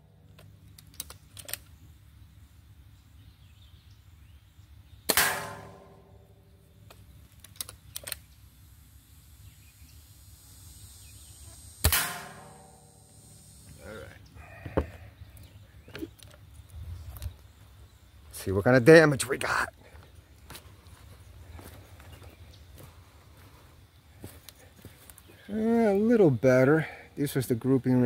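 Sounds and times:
air rifle shots: 5.1s - 6.3s, 11.8s - 13.6s
pellet hitting steel target: 5.1s - 6.3s, 11.8s - 13.1s.

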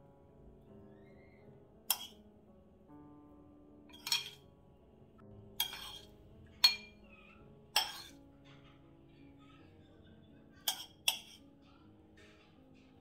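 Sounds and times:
quiet background music: 0.0s - 13.0s
metal spoon clinking on dishes: 1.9s - 2.2s, 3.9s - 4.5s, 5.6s - 7.1s, 7.7s - 8.2s, 10.6s - 11.5s.

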